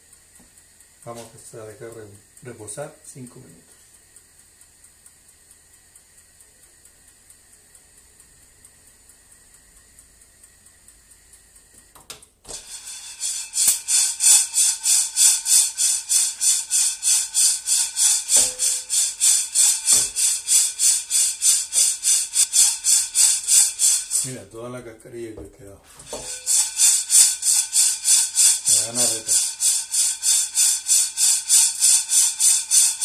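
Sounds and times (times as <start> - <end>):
coffee beans rattling in a pan: 12.5 - 24.4, 26.0 - 33.0.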